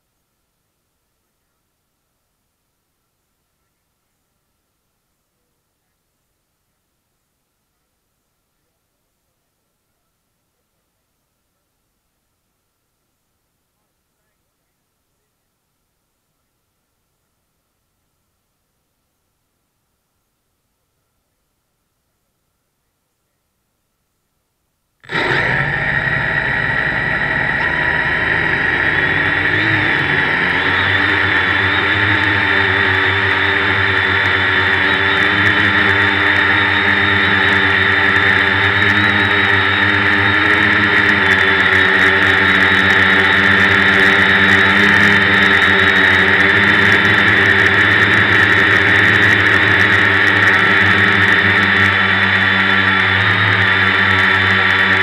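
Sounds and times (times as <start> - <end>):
drone motors and propellers whining: 25.0 - 55.0.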